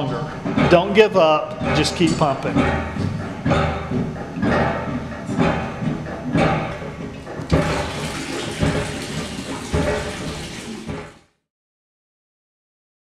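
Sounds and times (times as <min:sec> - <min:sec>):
hand pump handle knocking: 0:00.4 - 0:11.3
water splashing into plastic bucket: 0:07.4 - 0:11.3.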